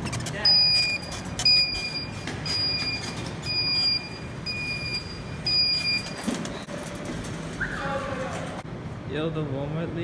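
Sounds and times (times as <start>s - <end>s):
scooter warning beeper: 0.5s - 6.3s.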